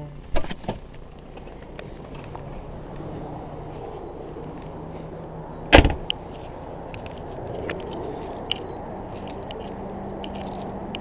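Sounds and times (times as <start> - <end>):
car door slamming: 5.7 - 6.1.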